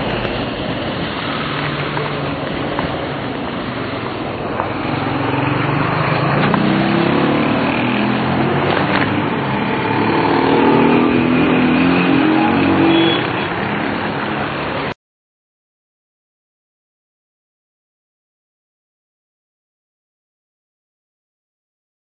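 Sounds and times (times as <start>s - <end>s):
car engines passing: 0.0s - 15.0s
road noise: 0.0s - 15.0s.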